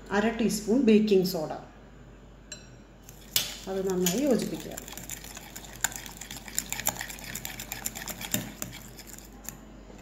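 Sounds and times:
fork scraping glass bowl: 3.0s - 9.6s
wet mixture stirring: 3.0s - 10.0s.

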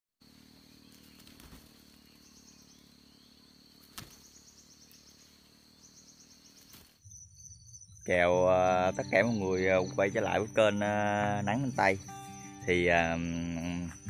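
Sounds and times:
fast pulsed insect chirps: 0.2s - 14.0s
insect trilling: 0.2s - 14.0s.

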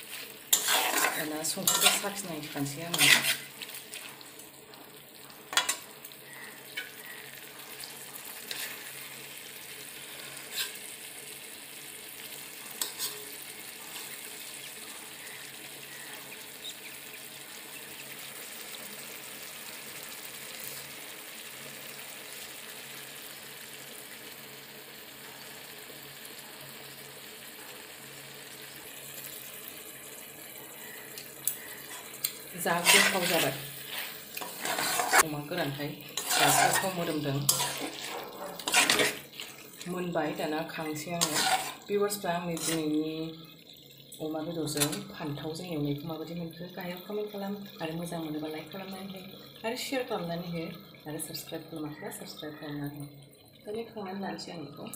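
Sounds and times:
metal spoon scraping a pan: 0.0s - 4.2s, 5.5s - 9.1s, 10.0s - 10.9s, 12.7s - 14.3s, 31.5s - 43.0s, 44.7s - 45.1s
food sizzling in a wok: 0.0s - 53.0s.

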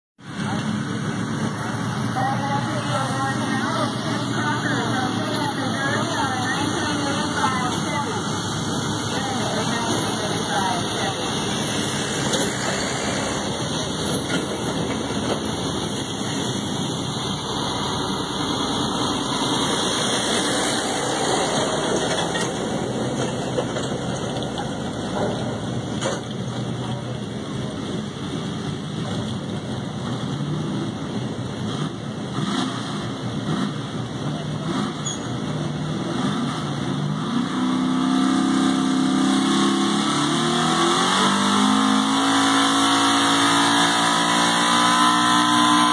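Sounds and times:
truck engine roaring under load: 0.2s - 45.9s.

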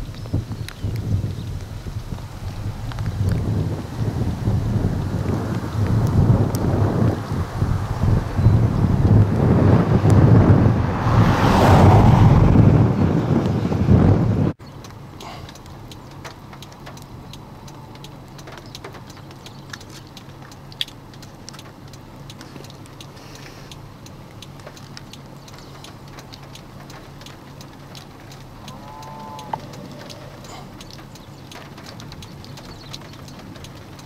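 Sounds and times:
light ticks: 0.0s - 3.7s, 5.2s - 6.7s, 14.6s - 34.0s
sharp clicks: 14.6s - 34.0s.

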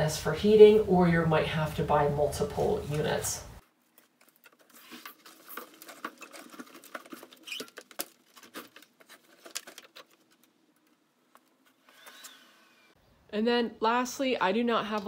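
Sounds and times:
cables clicking and rustling: 2.9s - 12.4s.

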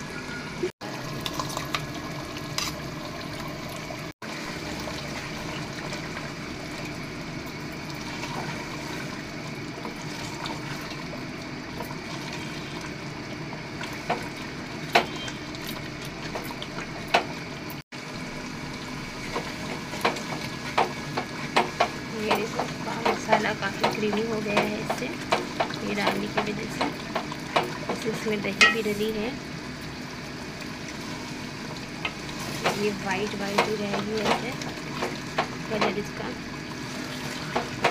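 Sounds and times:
spatula knocking and scraping pot: 19.4s - 29.0s.

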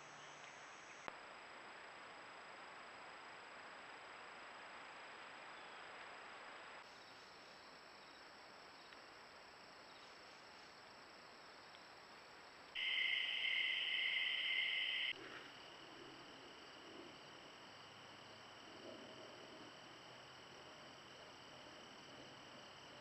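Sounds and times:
crickets trilling: 6.8s - 23.0s.

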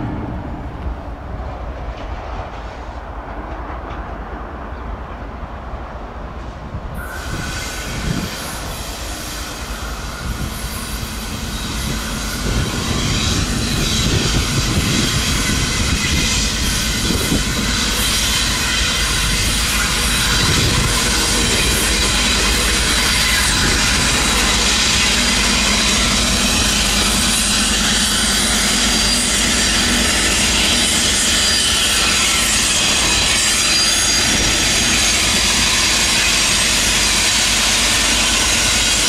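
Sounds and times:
train rumble: 0.0s - 39.0s
train wheels squealing on rails: 6.4s - 39.0s.

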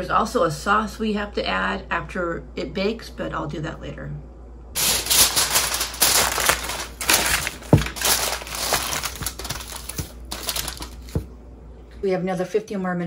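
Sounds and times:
aluminium foil crinkling: 4.8s - 11.3s.

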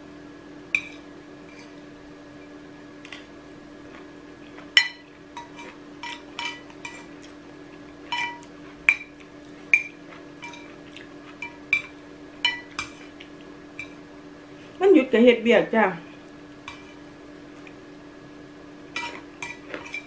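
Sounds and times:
cutlery clinking on ceramic plate: 4.8s - 7.1s, 8.1s - 9.1s, 9.7s - 10.7s, 11.4s - 13.0s, 19.0s - 20.0s.

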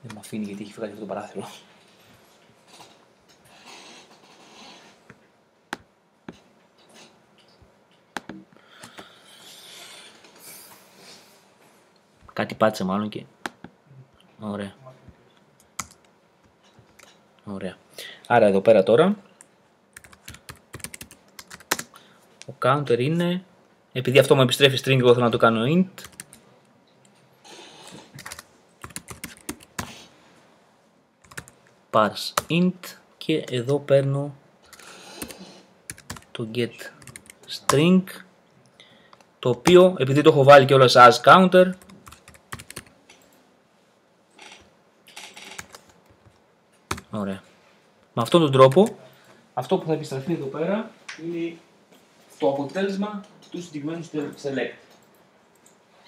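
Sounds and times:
computer keyboard typing: 15.8s - 16.1s, 20.0s - 22.0s, 26.0s - 26.4s, 28.2s - 29.9s, 31.2s - 31.6s, 34.7s - 36.4s, 37.0s - 37.8s, 41.7s - 43.0s, 44.4s - 47.1s.

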